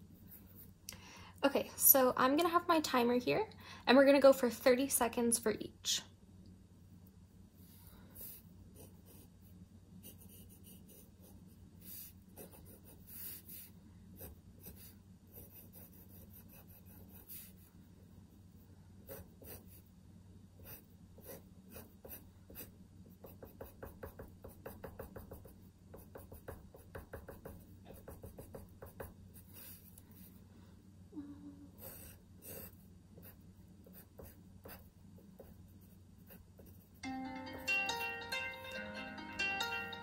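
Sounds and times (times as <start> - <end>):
faint low hum: 0.0 - 40.0
pencil scratching on paper: 8.2 - 17.8, 19.0 - 19.9, 20.6 - 30.4, 31.8 - 37.0.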